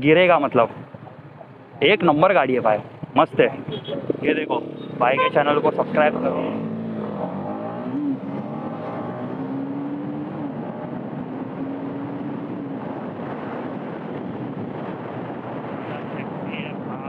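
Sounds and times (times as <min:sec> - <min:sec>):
motorcycle engine running: 0:00.4 - 0:08.9
wind noise: 0:05.8 - 0:17.0.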